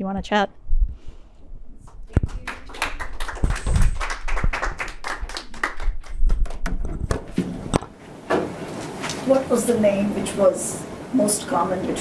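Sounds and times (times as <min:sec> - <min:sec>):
audience applauding: 0:02.1 - 0:07.3.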